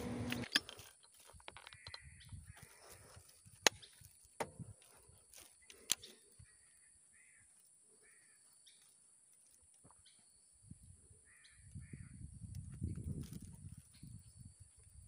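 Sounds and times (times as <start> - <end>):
faint bird calls: 5.2 - 9.0, 10.0 - 12.4.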